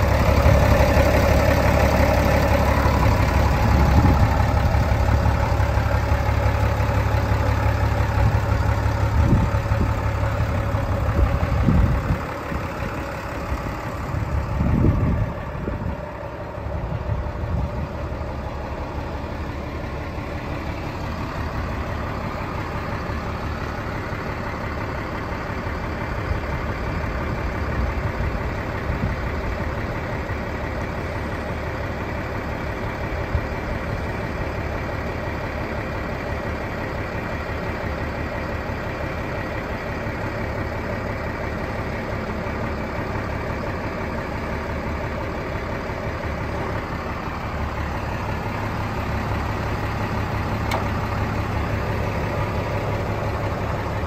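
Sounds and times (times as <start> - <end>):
tractor diesel engine idling: 0.0 - 54.0.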